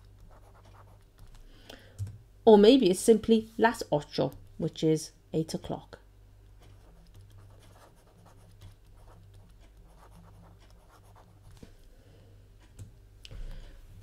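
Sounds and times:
low steady hum: 0.0 - 14.0
pen scratching paper: 0.2 - 1.4, 6.7 - 11.6.

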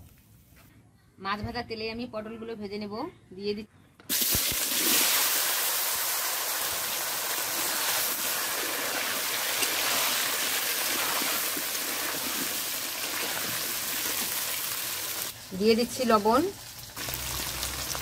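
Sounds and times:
vegetables sizzling in hot oil: 4.1 - 18.0.

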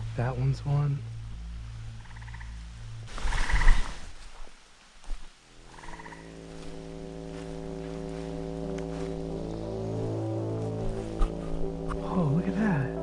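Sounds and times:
humming drone: 0.0 - 4.2, 5.4 - 13.0
rustling with low thumps: 0.0 - 13.0
frog trilling: 2.0 - 4.1, 5.6 - 6.4.

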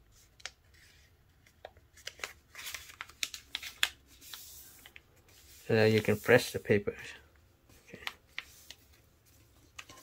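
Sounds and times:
paper rustling and crinkling: 0.1 - 6.8, 7.7 - 10.0
sharp paper crackles: 2.0 - 6.5
paper pressed flat hiss: 2.0 - 6.8.

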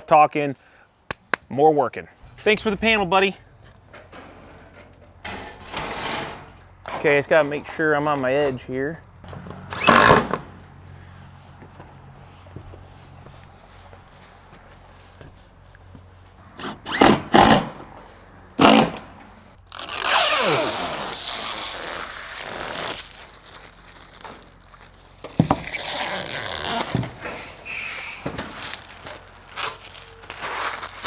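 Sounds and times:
plastic film ripping: 19.6 - 31.0
plastic film rustling: 19.6 - 31.0.

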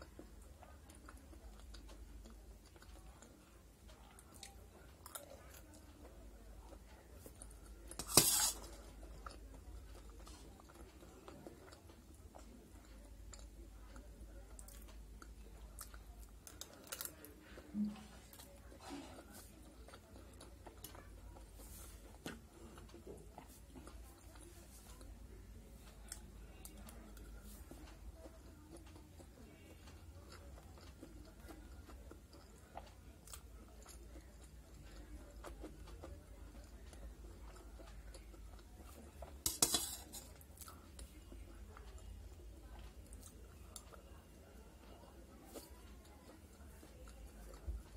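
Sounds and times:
faint chewing: 0.0 - 47.9
low steady hum: 0.0 - 47.9
metal spoon scraping steel plate: 8.0 - 8.7, 39.5 - 40.3
spoon clinking on steel plate: 39.5 - 40.1.

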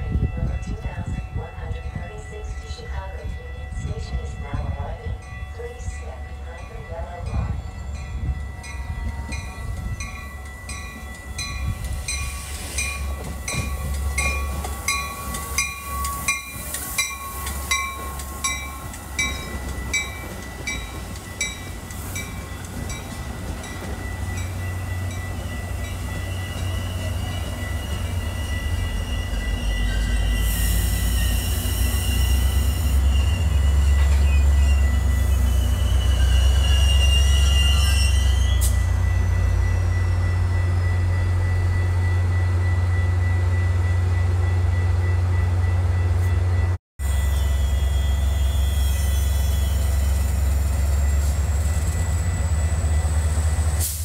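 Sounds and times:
train bell ringing: 0.0 - 53.6
diesel locomotive rumble: 0.0 - 54.0
train wheel rumble: 0.0 - 54.0
high wheel squeal: 24.1 - 39.8, 47.0 - 52.9.

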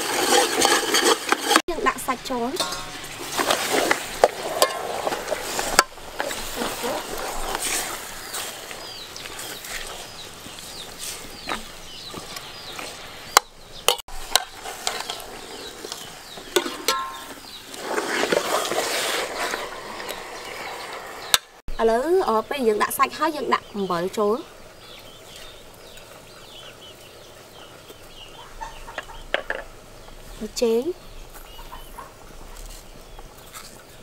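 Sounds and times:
ladle clinking against pot: 2.6 - 3.0, 16.6 - 17.4.

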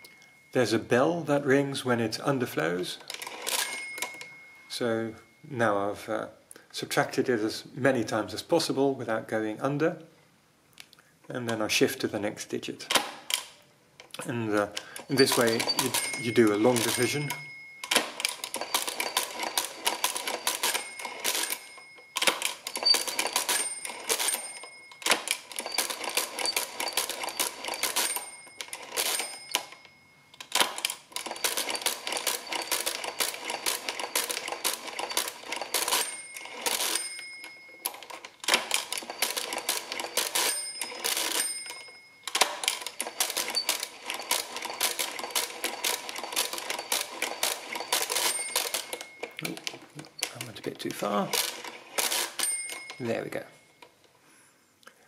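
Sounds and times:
calculator bell ringing: 0.0 - 1.0, 3.0 - 5.5, 14.7 - 50.4, 51.0 - 54.0
calculator gears clattering: 3.0 - 4.4, 14.8 - 53.0.

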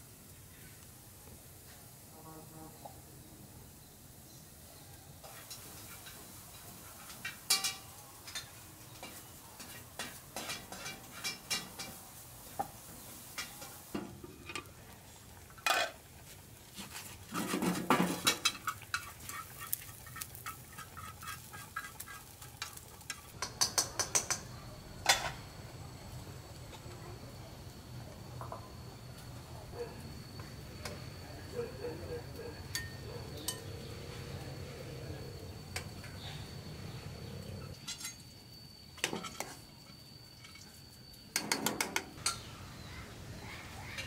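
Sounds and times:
clatter and scrape: 15.6 - 23.3.

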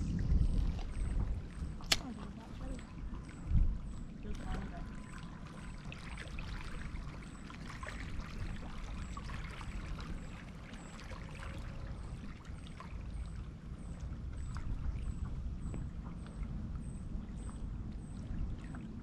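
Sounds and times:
wind rumbling on microphone: 0.0 - 19.0
small waves lapping on shore: 0.1 - 15.2
small splashes: 4.2 - 13.4.

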